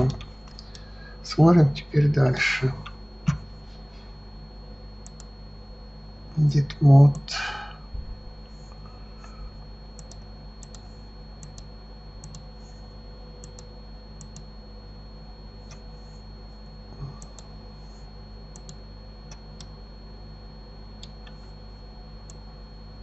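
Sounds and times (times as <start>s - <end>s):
computer mouse clicks: 0.0s - 0.9s, 5.0s - 5.3s, 10.0s - 12.5s, 13.4s - 14.5s, 15.6s - 15.9s, 17.2s - 17.5s, 18.5s - 19.8s, 21.0s - 21.5s, 22.2s - 22.4s
steady low hum: 0.0s - 23.0s.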